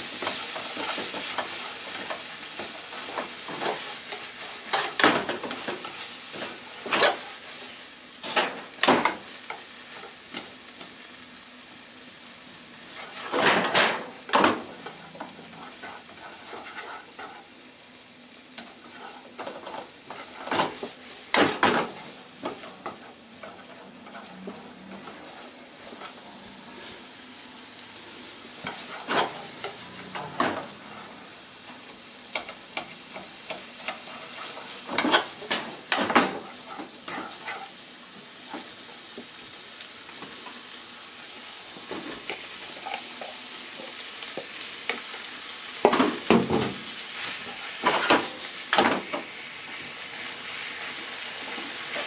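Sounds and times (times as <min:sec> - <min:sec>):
onion and ham sizzling in a pan: 0:00.0 - 0:52.0
chopsticks scraping and tapping a pan: 0:13.0 - 0:17.5, 0:28.6 - 0:30.7, 0:32.3 - 0:37.7.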